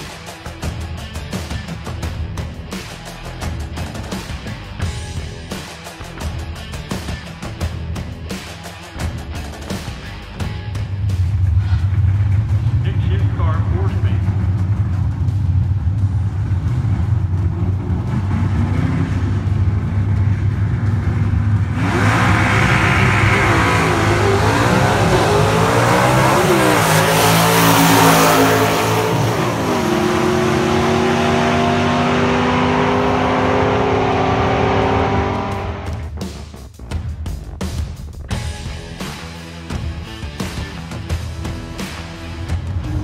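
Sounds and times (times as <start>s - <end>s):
car engines revving at full throttle: 8.6s - 36.5s, 38.3s - 43.0s
car engines rumbling: 9.0s - 36.5s, 40.9s - 43.0s.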